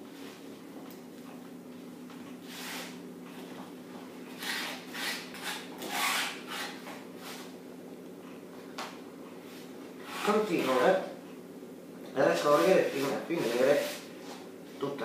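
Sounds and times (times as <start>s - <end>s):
knife scraping a wooden board: 2.5s - 3.0s, 4.4s - 7.5s, 10.0s - 10.8s, 12.5s - 14.4s.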